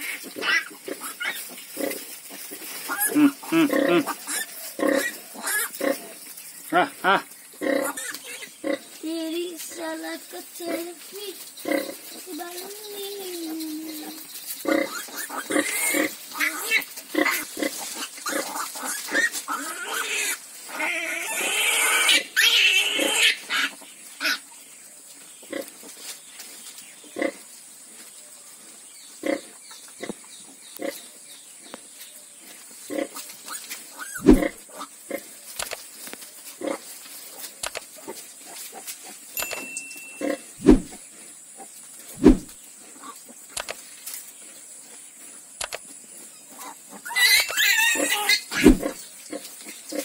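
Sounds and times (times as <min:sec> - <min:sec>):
piglets squealing: 0:00.0 - 0:02.0, 0:02.8 - 0:06.0, 0:06.8 - 0:08.8, 0:13.5 - 0:24.4, 0:33.5 - 0:34.9, 0:46.5 - 0:49.0
pig grunts: 0:02.9 - 0:08.9, 0:34.1 - 0:35.3, 0:46.5 - 0:50.0.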